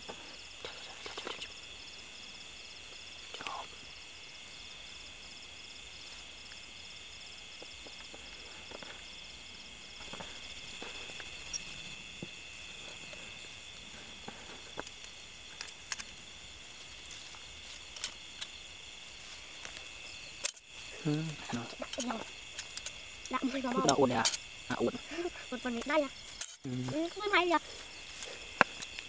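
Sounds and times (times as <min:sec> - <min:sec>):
crickets chirping: 0:00.0 - 0:29.0
rustling in dry grass: 0:03.9 - 0:23.2, 0:25.3 - 0:29.0.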